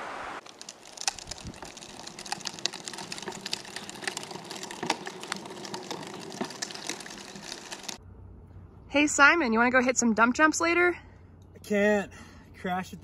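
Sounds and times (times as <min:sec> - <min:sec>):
lawn spreader rattling on concrete: 0:00.6 - 0:08.0.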